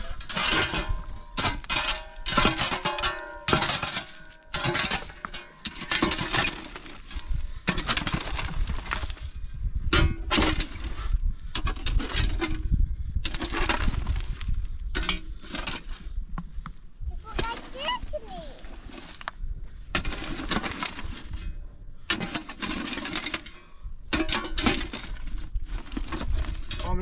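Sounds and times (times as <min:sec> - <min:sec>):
rough scraping and clattering: 0:00.0 - 0:27.0.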